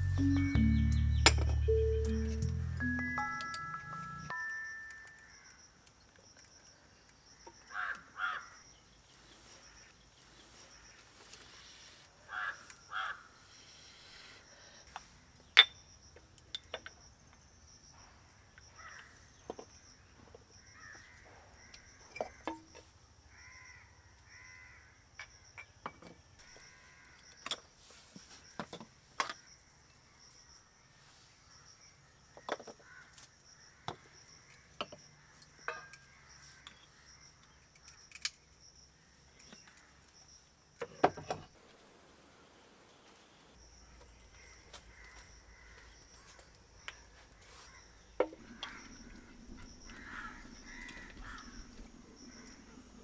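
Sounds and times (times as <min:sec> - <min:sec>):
faint steady high tone: 0:00.0 - 0:05.7
crows cawing: 0:07.7 - 0:08.6, 0:12.3 - 0:13.4, 0:18.8 - 0:19.2, 0:20.7 - 0:22.5, 0:23.3 - 0:25.0, 0:26.4 - 0:27.4, 0:32.8 - 0:36.8, 0:44.4 - 0:46.4, 0:47.4 - 0:52.6.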